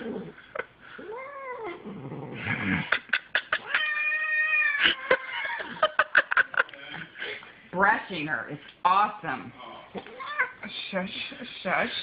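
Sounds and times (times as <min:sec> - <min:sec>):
cat yowling: 0:03.6 - 0:05.4.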